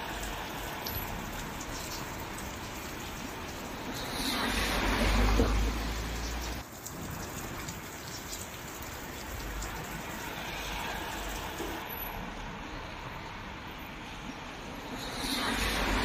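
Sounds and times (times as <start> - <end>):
heavy rain pattering: 0.0 - 12.6.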